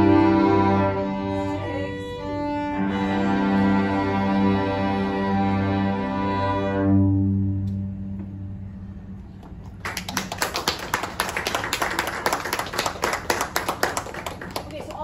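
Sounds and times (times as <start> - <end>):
string ensemble chord: 0.0 - 9.4
applause: 9.8 - 15.0.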